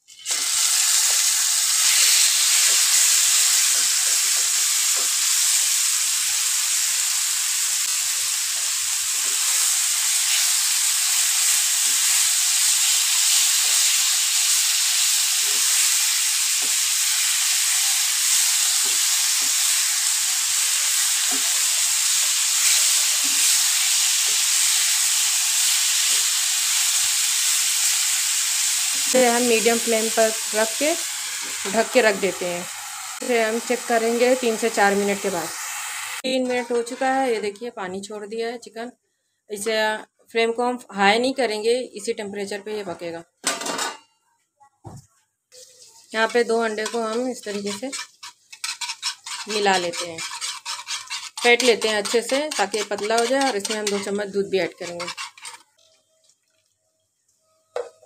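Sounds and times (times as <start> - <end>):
chicken sizzling in hot oil: 0.0 - 37.0, 45.5 - 57.6
wooden spatula scraping and tapping: 45.6 - 56.6.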